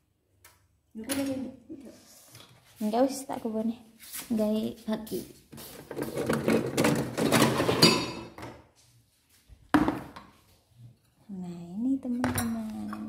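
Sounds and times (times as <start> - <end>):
kitchen clatter: 5.6 - 8.6, 12.1 - 13.0.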